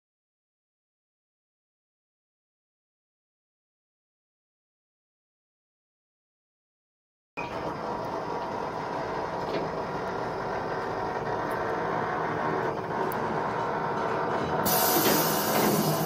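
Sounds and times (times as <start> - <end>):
car lift lowering: 8.4 - 16.0.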